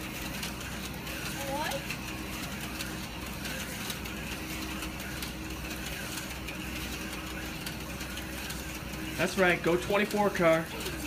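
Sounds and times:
slot car motors whirring: 0:00.0 - 0:11.0.

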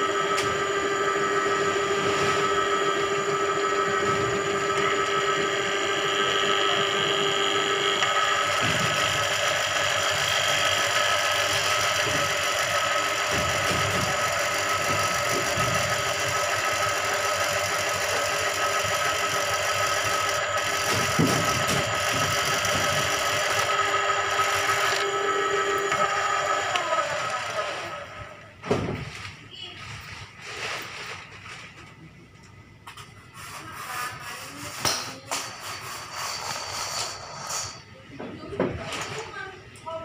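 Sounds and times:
drain-cleaning machine running: 0:00.0 - 0:31.9.

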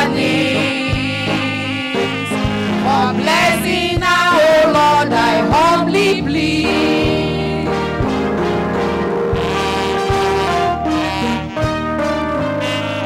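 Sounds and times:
women singing gospel: 0:00.0 - 0:08.0
amplified instrumental backing: 0:00.0 - 0:13.0.

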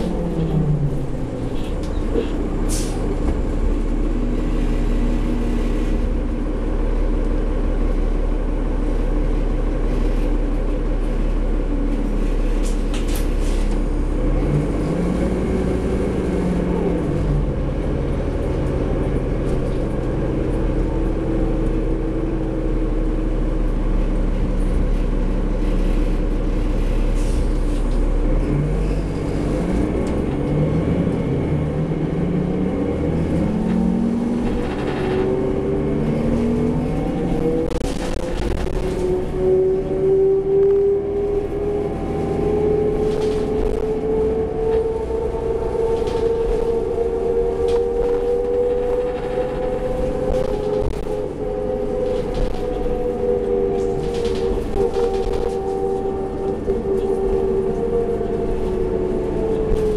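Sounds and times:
bus diesel engine: 0:00.0 - 0:59.9
rising whine: 0:28.2 - 0:59.9.

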